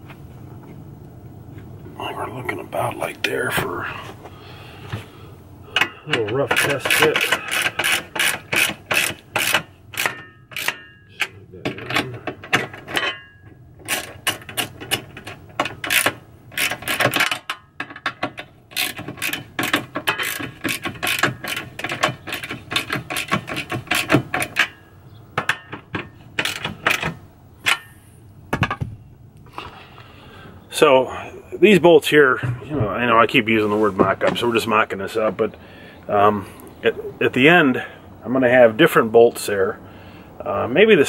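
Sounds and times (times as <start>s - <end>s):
ratchet wrench clicking: 6.5s - 11.3s, 13.9s - 17.6s, 18.7s - 24.7s, 26.4s - 27.8s.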